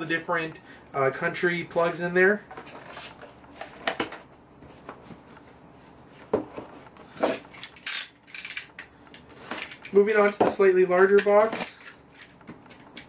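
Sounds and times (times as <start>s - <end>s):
cardboard boxes knocking and scraping: 6.2s - 7.4s.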